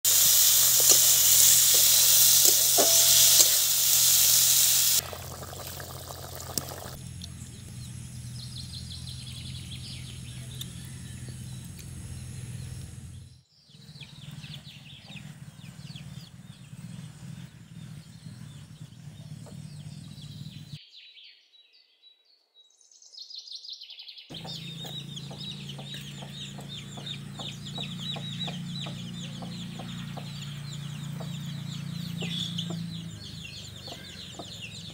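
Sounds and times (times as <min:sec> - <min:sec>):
chickens clucking: 0:00.0 - 0:07.0, 0:24.3 - 0:34.9
birds chirping: 0:00.0 - 0:21.6, 0:24.2 - 0:34.9
meat sizzling in a pan: 0:00.1 - 0:07.0.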